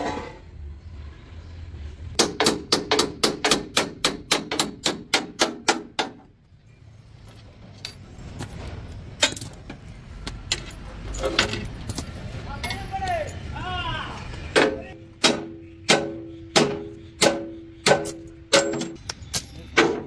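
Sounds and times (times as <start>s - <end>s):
hammer striking metal: 2.2s - 6.2s, 14.5s - 20.0s.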